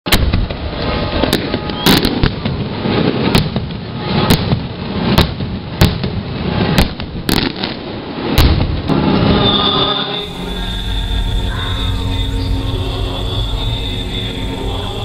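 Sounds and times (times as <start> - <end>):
firework bangs: 0.1 - 9.6
rumbling echo: 0.1 - 15.0.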